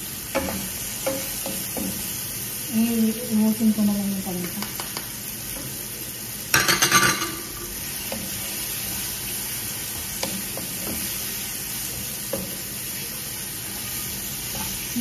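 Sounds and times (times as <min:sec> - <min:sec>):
chicken sizzling in a pan: 0:00.0 - 0:15.0
spatula scraping a pan: 0:13.8 - 0:15.0.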